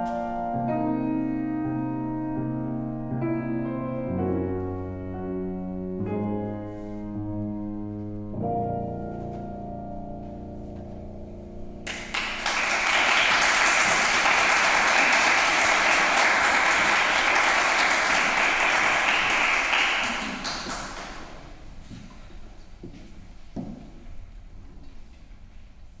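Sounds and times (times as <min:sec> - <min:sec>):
grand piano chords: 0:00.0 - 0:26.0
audience applause: 0:11.9 - 0:21.5.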